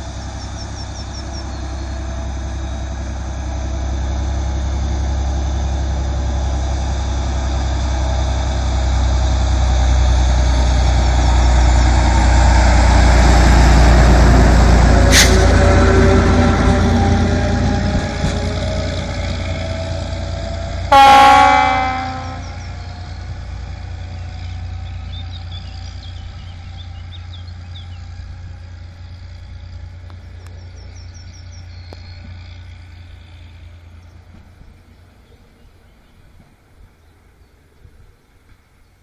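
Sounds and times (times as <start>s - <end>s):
diesel railcar running: 0.0s - 39.0s
train horn blast: 15.1s - 18.5s, 20.9s - 22.7s.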